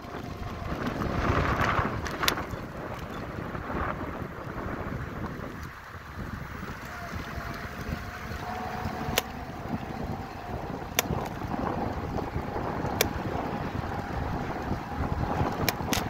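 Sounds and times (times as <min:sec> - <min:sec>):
bicycle tyres rolling on asphalt: 0:00.0 - 0:16.0
wind buffeting microphone: 0:00.0 - 0:16.0
sharp clicks: 0:08.9 - 0:09.4, 0:10.9 - 0:11.7, 0:12.9 - 0:13.3, 0:15.5 - 0:16.0.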